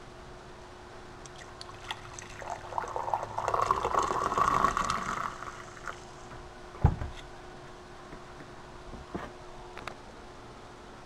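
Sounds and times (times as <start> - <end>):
coffee pouring into a mug: 1.3 - 6.2.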